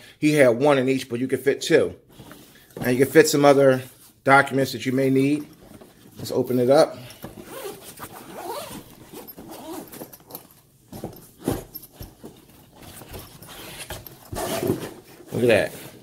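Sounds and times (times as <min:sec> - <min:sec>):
zipper pulled open: 0:07.4 - 0:10.4.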